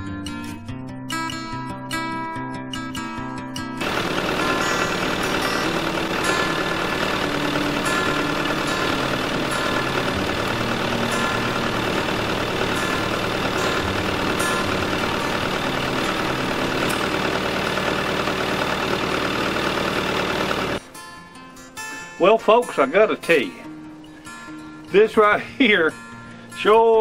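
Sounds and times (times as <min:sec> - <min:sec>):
backhoe loader engine running: 0:03.8 - 0:20.8.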